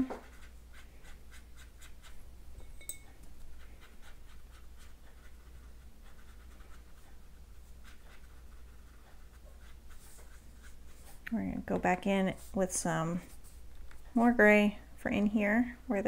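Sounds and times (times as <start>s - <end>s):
brush stroking on paper: 0.0s - 2.3s, 3.4s - 14.4s
light clink: 2.6s - 3.2s.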